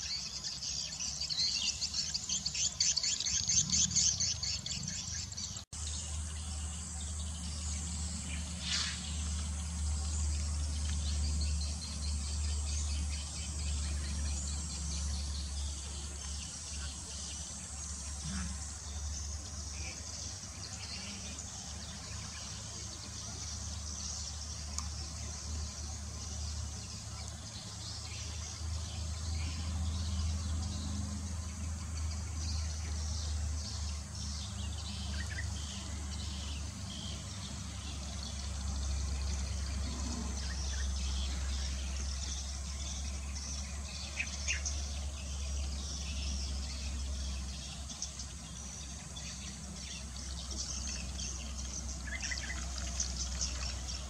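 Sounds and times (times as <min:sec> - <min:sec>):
high insect-like hiss: 0:08.3 - 0:10.6.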